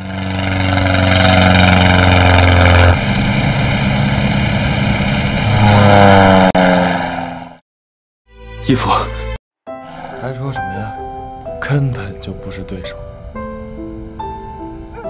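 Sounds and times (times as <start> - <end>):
propeller engine droning: 0.0 - 7.6.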